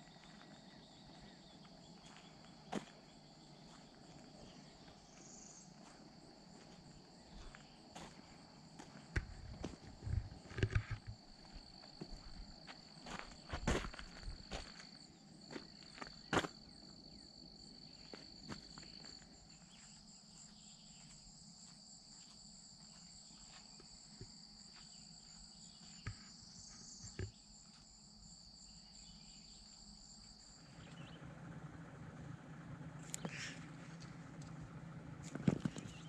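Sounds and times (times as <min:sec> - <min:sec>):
insects trilling: 0:00.0 - 0:36.0
low steady hum: 0:00.0 - 0:36.0.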